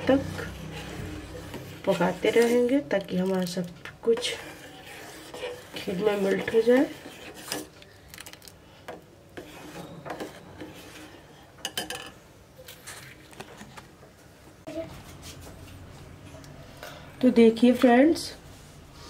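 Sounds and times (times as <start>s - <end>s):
ladle scraping a metal pot: 0.0s - 8.0s, 8.8s - 12.1s.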